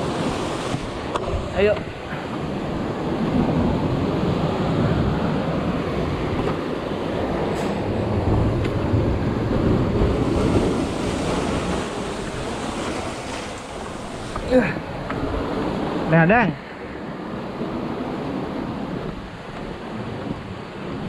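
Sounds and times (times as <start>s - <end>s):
surf breaking over rocks: 0.0s - 15.8s
wind buffeting microphone: 0.0s - 21.0s.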